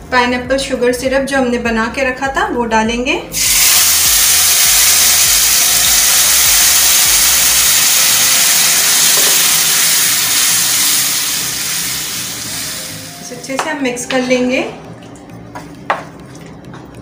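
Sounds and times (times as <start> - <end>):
syrup sizzling in hot pan: 3.4 - 13.2.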